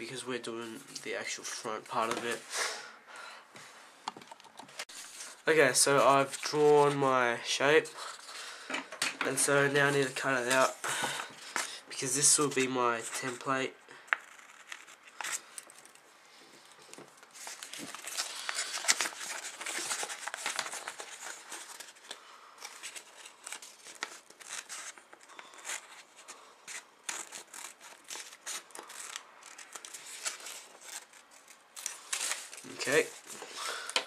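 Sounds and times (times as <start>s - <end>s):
paper rustling and crinkling: 16.6s - 34.0s
scissors snipping paper: 22.9s - 32.6s.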